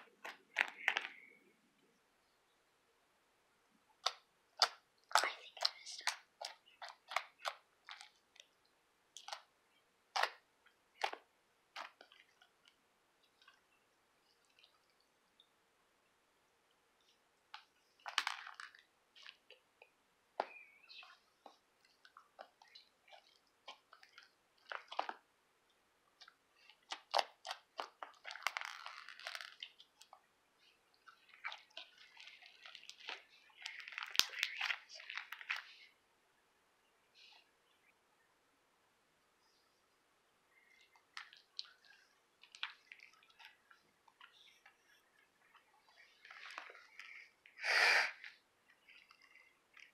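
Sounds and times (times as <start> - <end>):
slime clicking and crackling: 0.0 - 1.3, 4.0 - 9.5, 10.1 - 13.7, 17.5 - 25.2, 26.2 - 35.7, 40.6 - 44.8
slime clicking and popping: 4.0 - 8.2.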